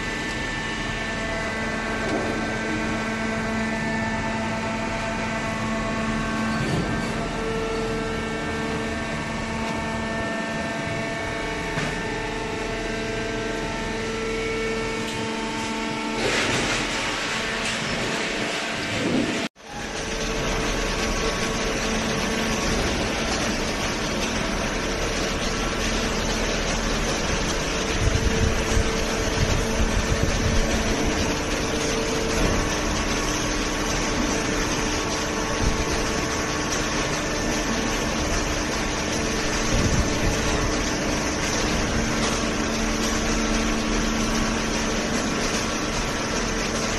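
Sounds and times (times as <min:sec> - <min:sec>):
baler machine hum: 0:00.0 - 0:46.9.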